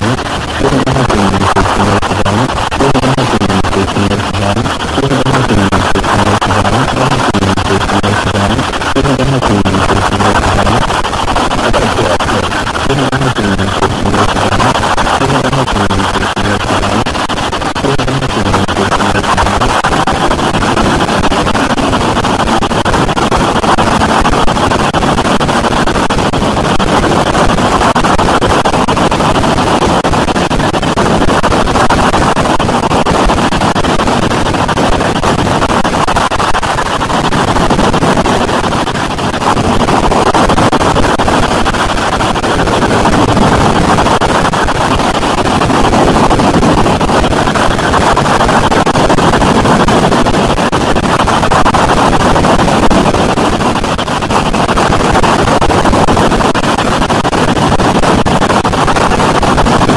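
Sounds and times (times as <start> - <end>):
harsh distorted noise music: 0.0 - 24.4.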